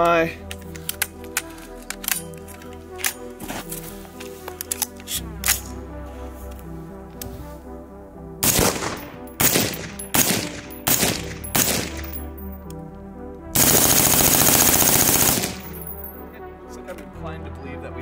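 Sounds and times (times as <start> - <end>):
rapid rifle fire burst: 8.4 - 12.1, 13.6 - 15.8
suppressed rifle shots: 8.4 - 12.3.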